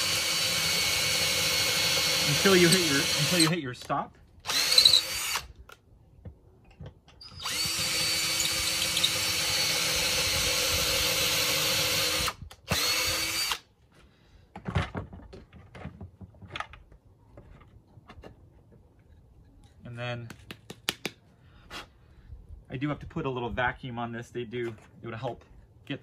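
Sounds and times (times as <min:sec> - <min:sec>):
cordless drill drilling into wood: 0:00.0 - 0:03.6, 0:04.4 - 0:05.6, 0:07.2 - 0:13.7.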